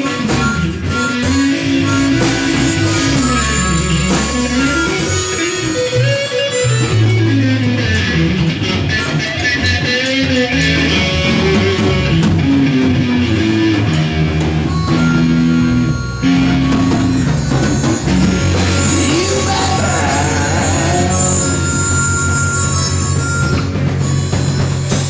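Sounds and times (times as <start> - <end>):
bass guitar: 0.0 - 25.0
electric guitar playing: 0.0 - 25.0
bending wavering guitar note: 1.3 - 8.1, 14.9 - 23.6.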